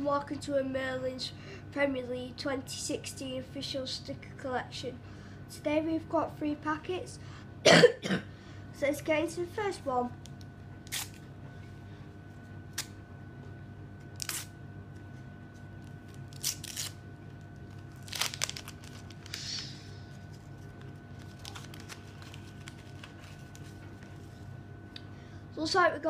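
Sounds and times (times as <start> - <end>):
faint steady hum: 0.0 - 26.0
wrapper tearing and crinkling: 10.9 - 11.2, 14.1 - 14.5, 15.9 - 24.2.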